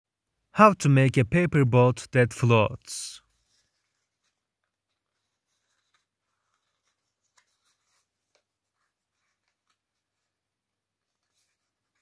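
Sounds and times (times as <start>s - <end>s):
soft paper crackles: 3.2s - 12.0s
paper rustling and crinkling: 3.3s - 12.0s.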